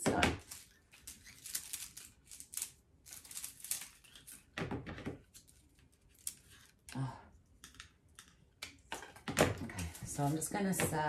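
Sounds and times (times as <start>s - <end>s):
crinkly rustling of craft pieces: 0.1s - 8.6s, 9.5s - 11.0s.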